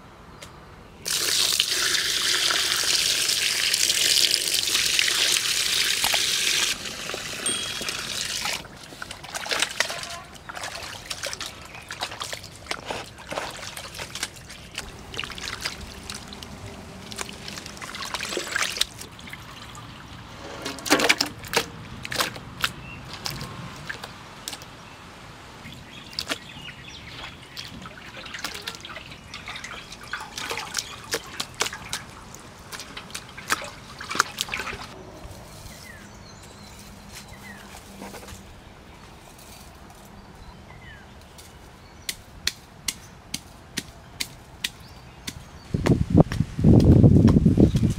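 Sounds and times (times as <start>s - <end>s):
water dripping: 1.1s - 20.3s, 25.7s - 35.0s
water splashing in metal basin: 1.1s - 22.7s, 27.1s - 35.0s.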